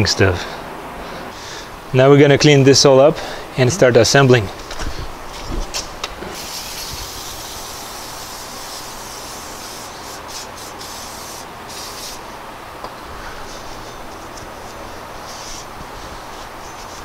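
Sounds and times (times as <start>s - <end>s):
aerosol spray hissing: 6.3s - 12.4s, 13.4s - 17.0s.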